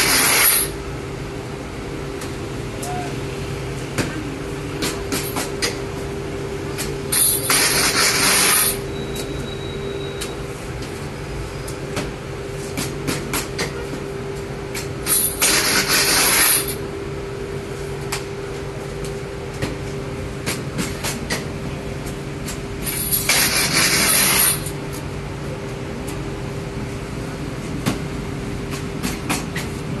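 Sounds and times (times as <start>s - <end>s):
bakery machinery humming: 0.0s - 30.0s.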